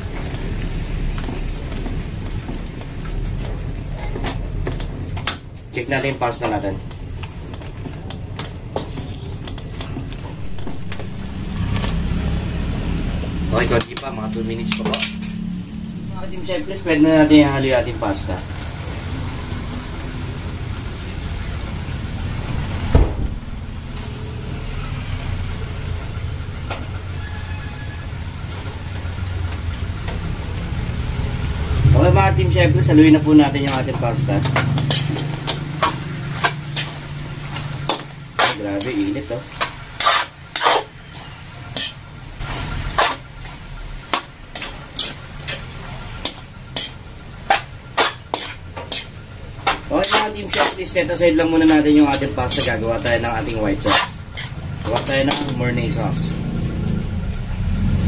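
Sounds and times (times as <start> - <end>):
faint sizzle: 0.0 - 56.2
metal spoon scraping pan: 6.9 - 12.1, 13.7 - 17.6, 32.1 - 56.2
steady low rumble: 10.1 - 19.0, 20.6 - 24.5.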